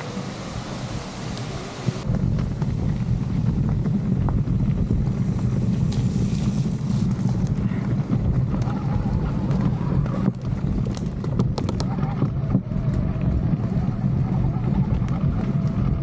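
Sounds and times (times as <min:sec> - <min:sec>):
wind buffeting microphone: 0:00.0 - 0:16.0
bike clicks and knocks: 0:02.0 - 0:13.8.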